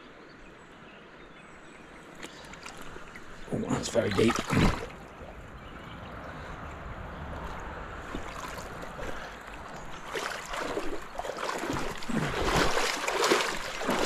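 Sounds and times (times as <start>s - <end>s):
river water rushing: 2.1s - 14.0s
footsteps on rock: 8.1s - 14.0s.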